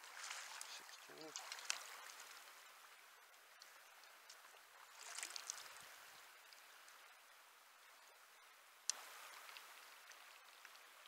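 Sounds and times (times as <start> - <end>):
water splash: 0.0 - 2.6, 4.8 - 6.2
faint river current flowing: 0.0 - 11.0.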